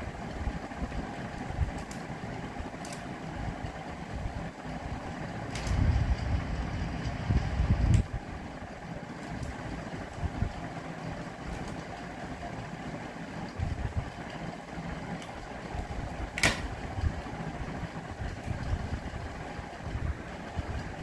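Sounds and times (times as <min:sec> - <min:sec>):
low background rumble: 0:00.0 - 0:21.0
plastic puzzle clicks and handling: 0:01.7 - 0:02.1, 0:02.8 - 0:03.1.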